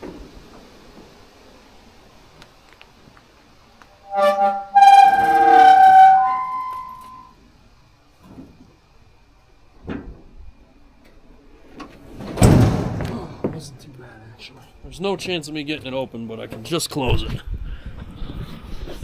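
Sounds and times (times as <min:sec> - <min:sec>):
hinges squealing: 0:04.0 - 0:07.4
heavy thud: 0:12.2 - 0:13.6.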